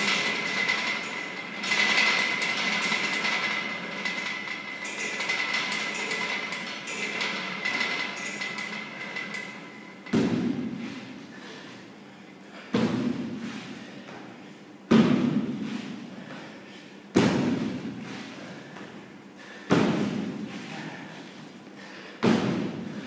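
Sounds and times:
feet landing on wooden box: 22.2 - 22.7.

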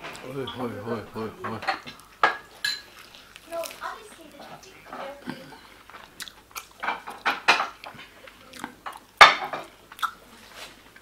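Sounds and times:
plates and cutlery clinking: 0.0 - 3.1, 4.4 - 6.1, 6.8 - 8.2, 8.8 - 9.8.

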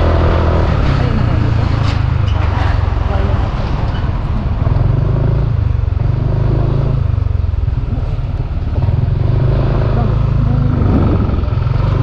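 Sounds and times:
motorcycle engine rumbling: 0.0 - 12.0
wind noise on microphone: 10.5 - 12.0.

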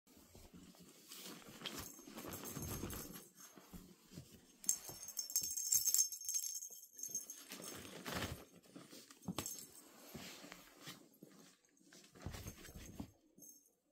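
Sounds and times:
puppies scrambling on blankets: 0.3 - 4.6, 7.3 - 9.3, 9.9 - 13.1
toy jingling: 4.6 - 7.8.

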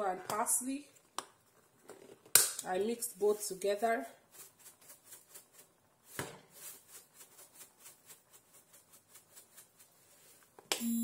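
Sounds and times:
dried herbs shaken onto food: 4.1 - 10.3
phone notification tone: 10.8 - 11.0.

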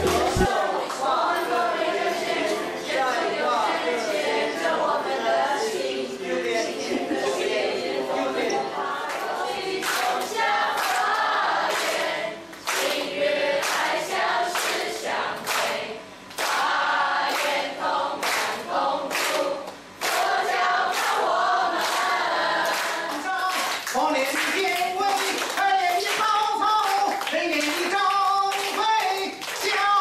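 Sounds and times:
group singing: 0.0 - 30.0
hands clapping: 9.8 - 13.9, 14.5 - 15.7, 16.3 - 16.7, 18.2 - 20.3, 21.8 - 30.0.

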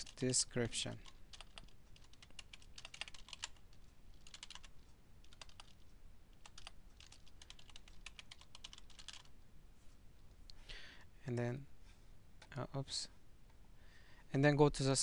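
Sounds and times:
keyboard typing: 1.0 - 9.3.

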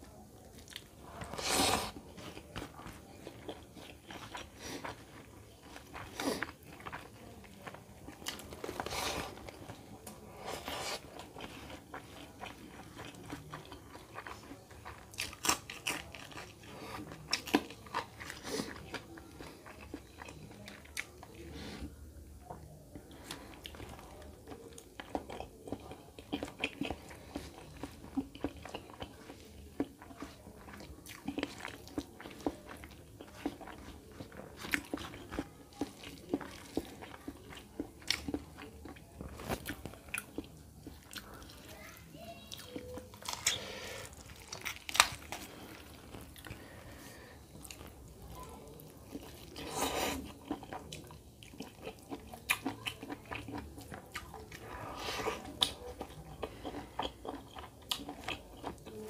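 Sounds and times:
chewing and mouth smacks: 2.2 - 21.2, 22.5 - 41.9, 42.5 - 59.0.

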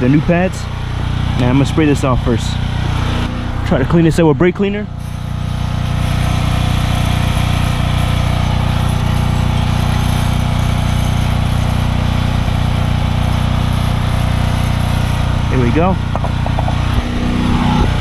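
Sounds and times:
spray can hissing: 4.9 - 17.2
low hum: 16.0 - 18.0.

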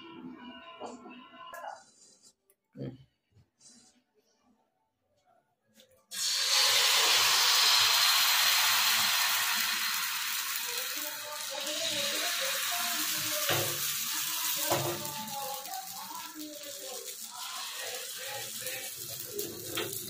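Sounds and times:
batter sizzling in a pan: 6.1 - 20.0.

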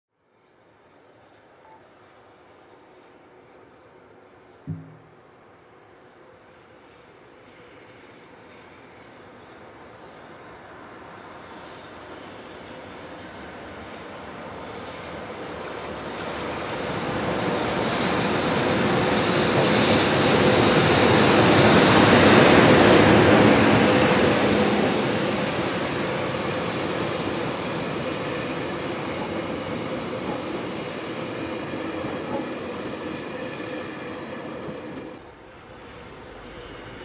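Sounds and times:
train wheels on rails: 10.7 - 37.0.

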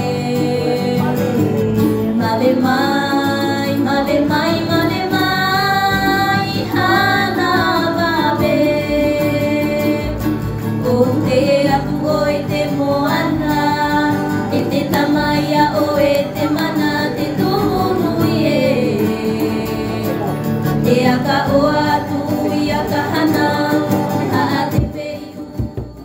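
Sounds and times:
song with sung melody: 0.0 - 26.0.

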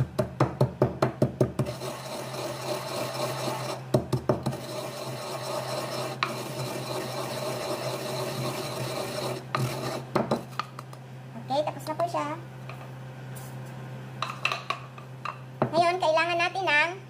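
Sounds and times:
pestle knocking: 0.0 - 1.8, 3.4 - 5.3
pestle grinding in mortar: 0.1 - 10.7.

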